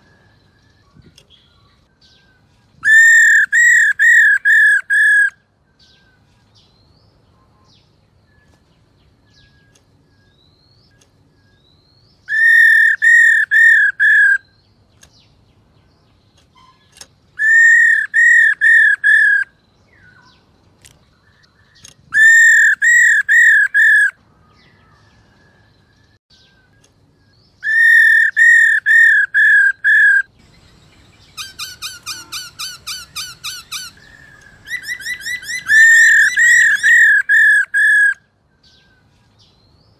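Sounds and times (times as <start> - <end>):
bird whistling calls: 0.0 - 6.1, 11.4 - 14.6, 16.6 - 20.3, 21.8 - 24.2, 27.6 - 38.8.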